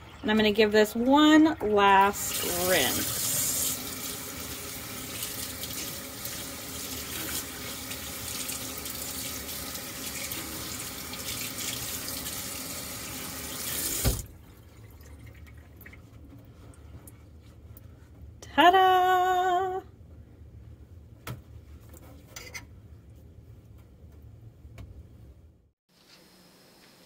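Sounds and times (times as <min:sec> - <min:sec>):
faucet water splashing into sink: 0:01.9 - 0:16.0
faucet thump: 0:13.9 - 0:14.3.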